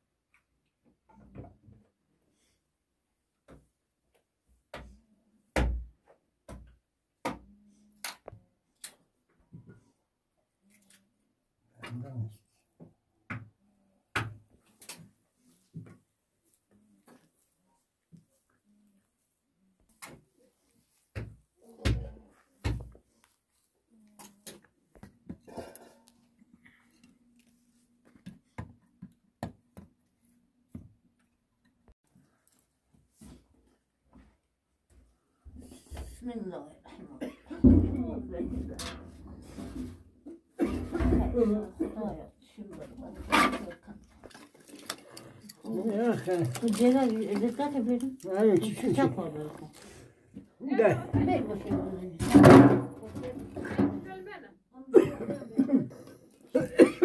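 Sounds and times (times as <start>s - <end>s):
objects being handled: 42.8s - 50.5s.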